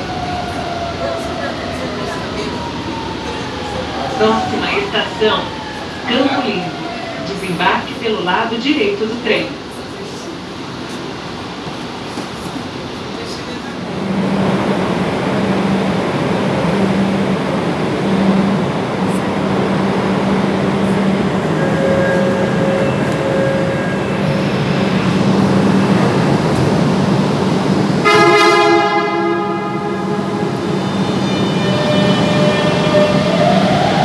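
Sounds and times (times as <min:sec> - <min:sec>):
metro train running rumble: 0:00.0 - 0:34.0
train horn blast: 0:28.0 - 0:33.3.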